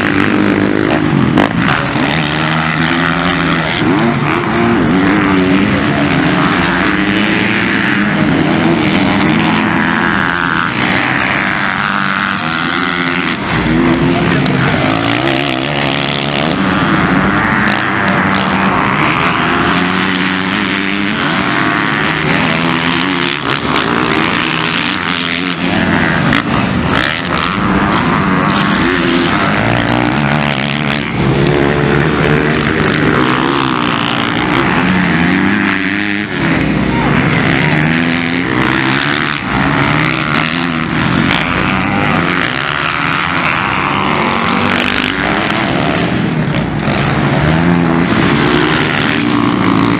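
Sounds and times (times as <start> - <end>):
motocross bike engines revving: 0.0 - 49.9.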